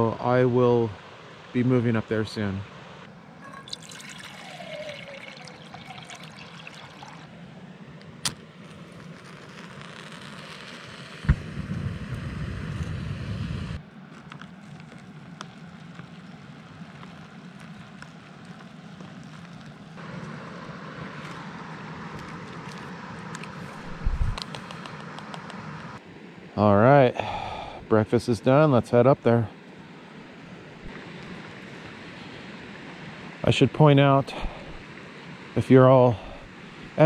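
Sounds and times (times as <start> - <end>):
water pouring into a cup: 3.4 - 7.3.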